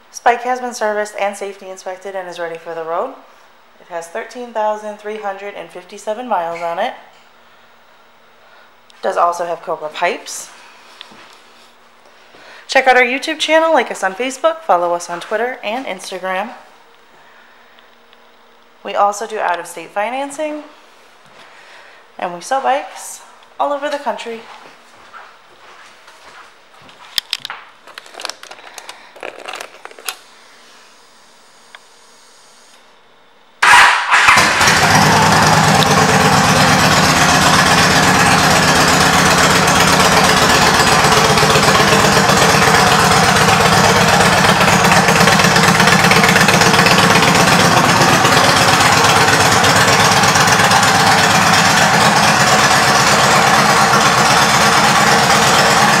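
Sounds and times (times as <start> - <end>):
motorcycle engine starting and idling: 33.6 - 56.0.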